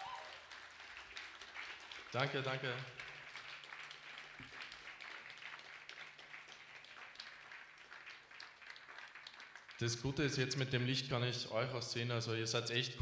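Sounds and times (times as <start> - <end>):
faint audience applause: 0.0 - 10.4.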